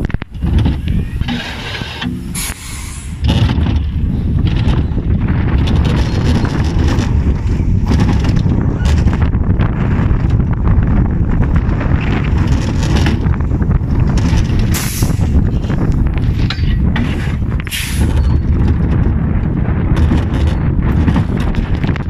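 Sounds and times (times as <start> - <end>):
roller coaster wheels rumbling: 0.0 - 22.0
wind on microphone: 0.0 - 22.0
short hisses: 2.3 - 3.2.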